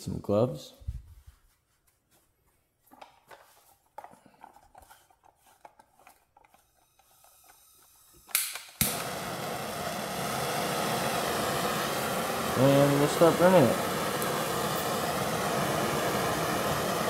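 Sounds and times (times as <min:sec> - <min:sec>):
torch handling clicks and rattles: 0:05.5 - 0:09.3
propane flame hissing: 0:06.6 - 0:17.0
gas burst and ignition pop: 0:08.1 - 0:17.0.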